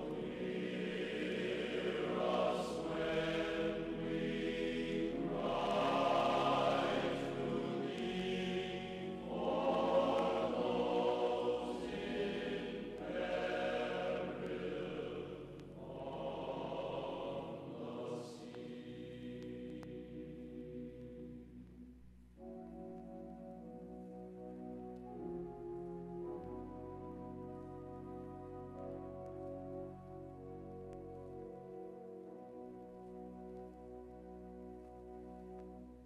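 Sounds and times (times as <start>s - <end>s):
slow sustained chord music: 0.0s - 36.0s.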